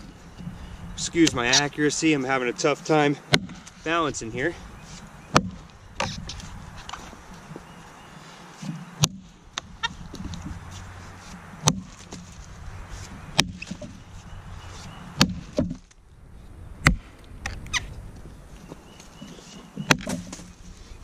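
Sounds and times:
axe chopping log: 3.3s - 3.7s, 5.3s - 6.2s, 9.0s - 9.3s, 11.6s - 12.3s, 13.4s - 13.9s, 15.2s - 15.8s, 16.8s - 17.1s, 19.8s - 20.5s.

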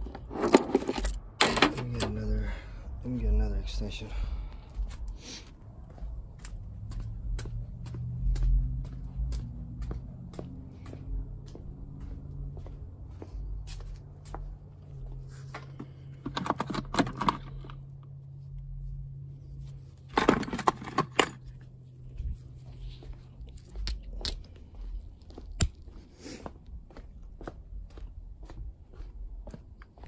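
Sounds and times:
steel sockets rattling: 16.3s - 17.8s, 20.1s - 21.6s.

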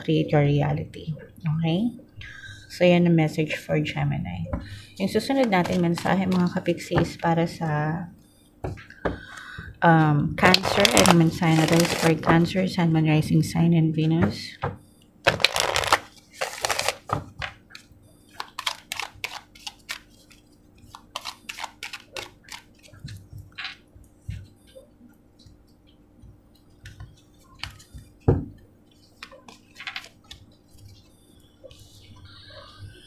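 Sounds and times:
cards riffle shuffled: 10.6s - 12.2s, 15.3s - 17.1s, 18.4s - 23.2s.

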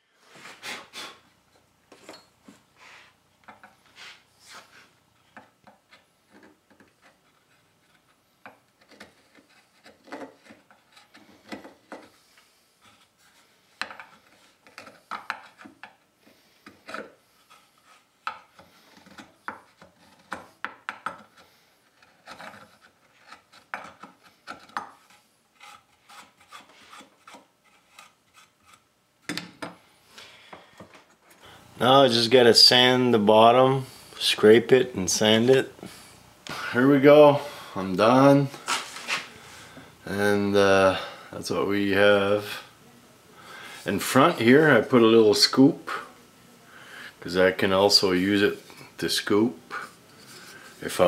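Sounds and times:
gouge scraping wood: 6.3s - 12.2s, 12.8s - 28.9s.

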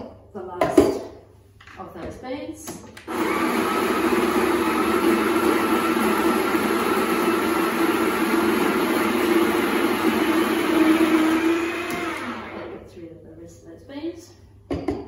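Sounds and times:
coffee grinder whirring: 3.0s - 12.8s.

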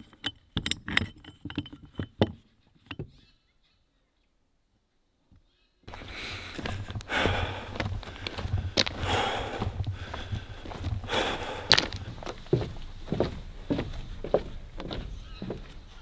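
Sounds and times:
sharp clicks and knocks: 0.0s - 3.2s
man breathing: 5.9s - 12.7s
footsteps: 5.9s - 16.0s.

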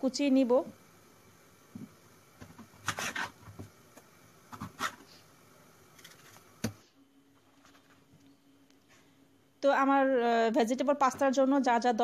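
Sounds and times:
knife cutting pepper on board: 2.5s - 3.6s, 4.5s - 5.1s.

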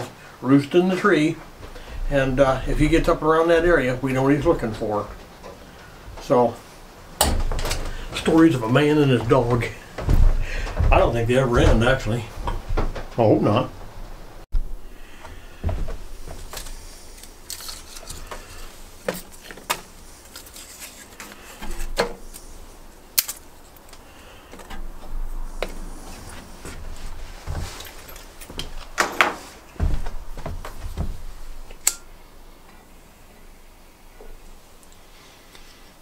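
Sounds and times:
heavier thumps: 1.4s - 6.4s, 7.1s - 16.6s, 24.8s - 31.7s.

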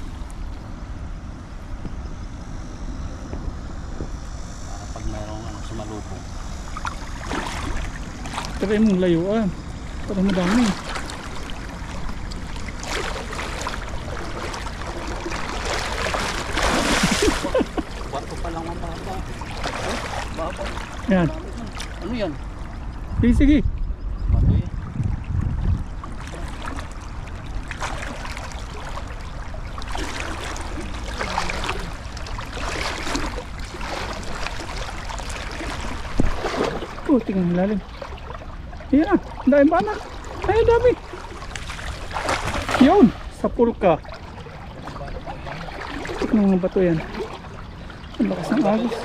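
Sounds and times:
water splashing surges: 5.8s - 23.4s, 25.1s - 49.0s
river water rushing: 10.0s - 22.7s, 26.2s - 43.4s.

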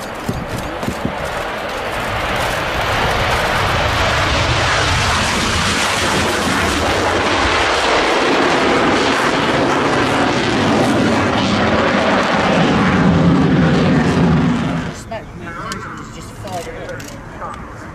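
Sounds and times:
jet engines roaring at full power: 0.0s - 17.9s.

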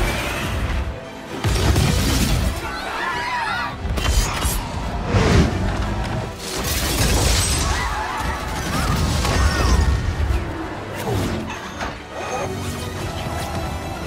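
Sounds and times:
orchestral film score: 0.0s - 14.0s.

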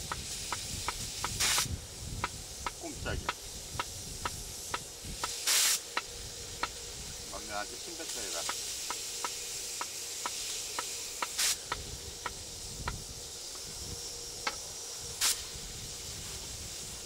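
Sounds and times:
gas stove burning hiss: 0.0s - 17.0s
short loud hisses: 5.3s - 5.9s, 11.2s - 11.7s, 15.2s - 16.9s.

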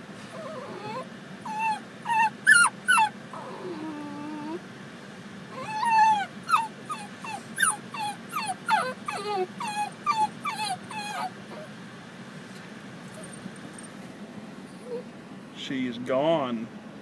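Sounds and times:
dog whining yips: 0.3s - 4.6s, 5.5s - 11.7s, 14.7s - 15.1s.

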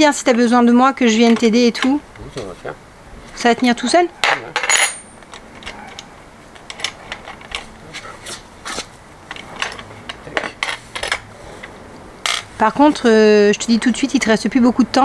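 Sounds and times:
ringing metallic clink: 4.2s - 5.2s
metal tools clicking: 4.6s - 7.7s.

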